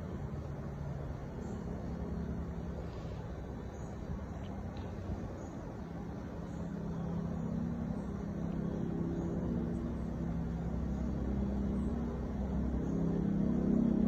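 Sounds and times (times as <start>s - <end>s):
motor vehicle engines rumbling: 0.0s - 14.0s.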